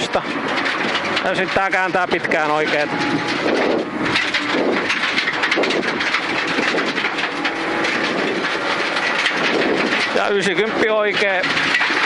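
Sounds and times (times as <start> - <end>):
car engine under load: 0.0 - 12.0
gravel road noise: 0.0 - 12.0.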